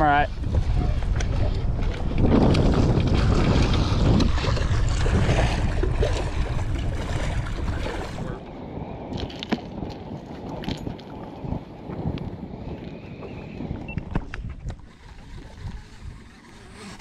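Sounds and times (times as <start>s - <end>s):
wind buffeting microphone: 0.0s - 17.0s
fish splashing in water: 3.1s - 8.4s.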